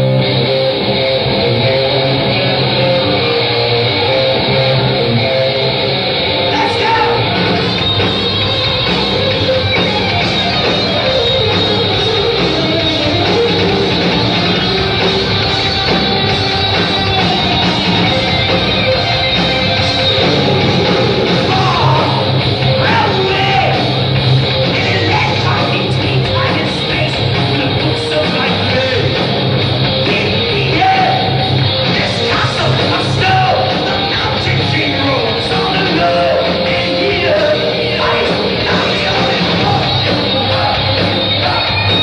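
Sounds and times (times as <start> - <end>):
bass guitar: 0.0 - 42.0
distorted electric guitar: 0.0 - 42.0
drums: 0.0 - 42.0
yelled vocals: 0.0 - 42.0.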